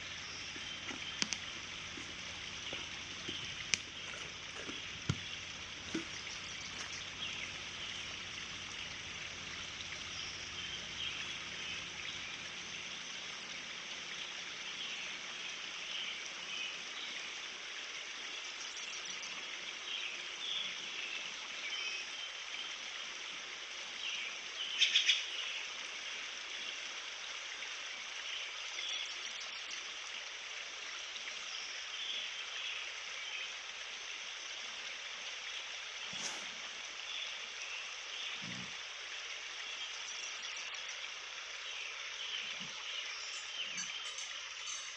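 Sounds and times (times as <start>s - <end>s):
steady rushing hiss: 0.0s - 14.0s, 35.9s - 37.7s
bird chirps: 42.2s - 44.9s.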